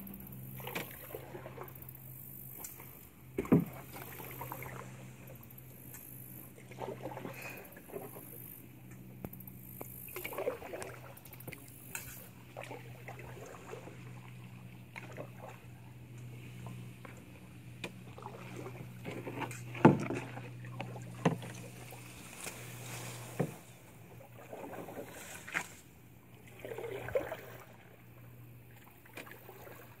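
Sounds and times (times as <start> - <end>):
steady low hum: 0.0 - 30.0
paddle strokes swishing in water: 0.1 - 30.0
paddle knocking against canoe hull: 3.3 - 4.8, 17.0 - 22.5, 23.2 - 23.7.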